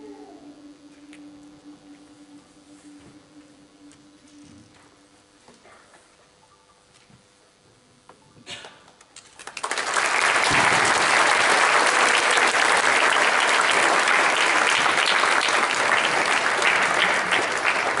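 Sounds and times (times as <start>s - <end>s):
audience applauding: 9.3s - 18.0s.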